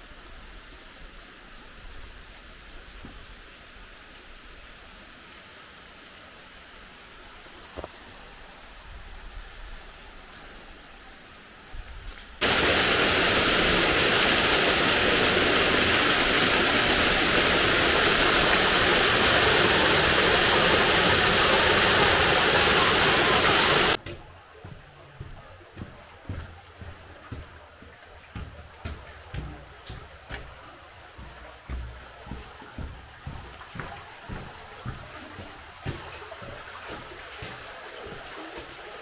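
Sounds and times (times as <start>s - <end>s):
faint hiss of distant water: 0.0s - 39.0s
water rushing down concrete channel: 12.4s - 39.0s.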